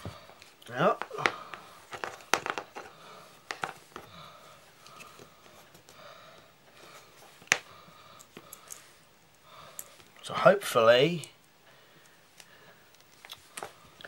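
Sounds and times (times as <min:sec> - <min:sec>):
small tools clicking and tapping: 0:01.0 - 0:02.9.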